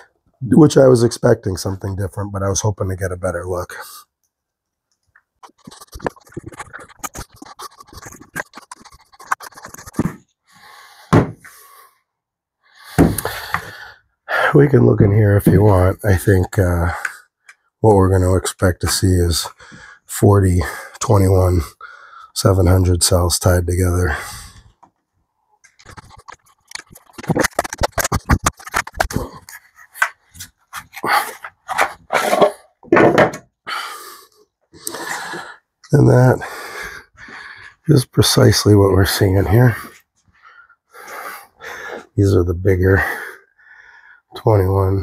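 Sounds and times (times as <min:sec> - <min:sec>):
battery thumping on wooden bench: 0:11.1 - 0:11.5, 0:13.0 - 0:13.4.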